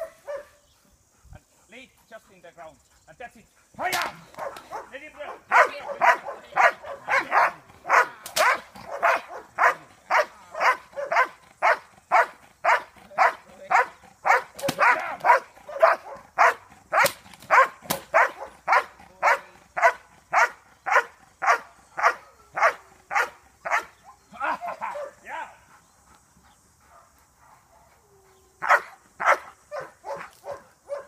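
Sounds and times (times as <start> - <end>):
large dog barking aggressively: 0.0 - 0.6, 3.8 - 25.2, 28.6 - 31.0
sharp cracks: 3.8 - 4.8, 7.9 - 9.2, 14.4 - 15.4, 16.9 - 18.3.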